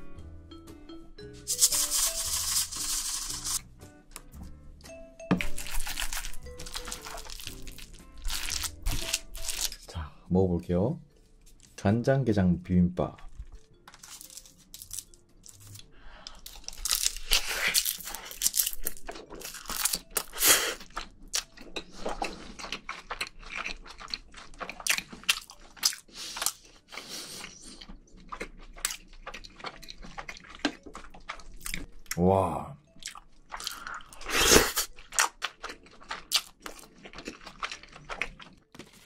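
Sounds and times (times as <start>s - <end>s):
chewing and crunching food: 5.4s - 9.9s, 13.1s - 39.0s.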